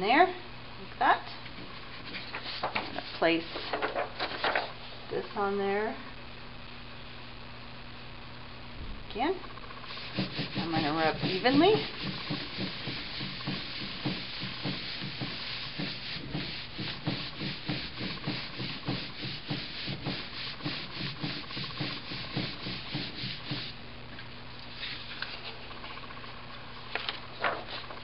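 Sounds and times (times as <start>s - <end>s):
palms rubbing paper: 1.4s - 4.8s, 9.8s - 23.8s.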